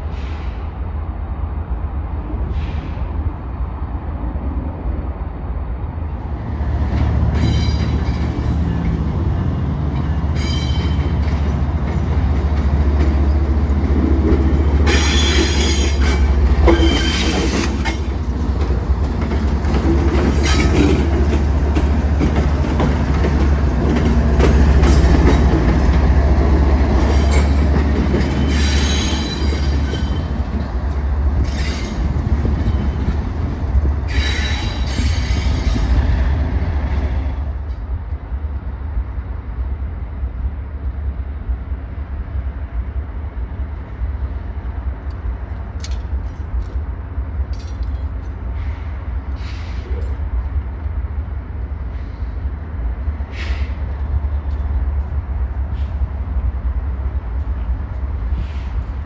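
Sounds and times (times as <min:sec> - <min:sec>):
deep locomotive engine rumble: 0:00.0 - 0:59.0
wheels squealing on rails: 0:07.0 - 0:13.7, 0:14.3 - 0:18.3, 0:20.0 - 0:21.9, 0:24.0 - 0:30.7, 0:31.4 - 0:33.4, 0:34.0 - 0:36.3, 0:58.3 - 0:59.0.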